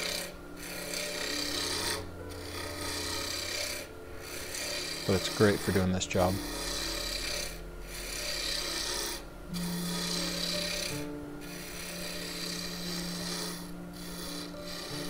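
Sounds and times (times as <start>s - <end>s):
gouge scraping wood on lathe: 0.0s - 15.0s.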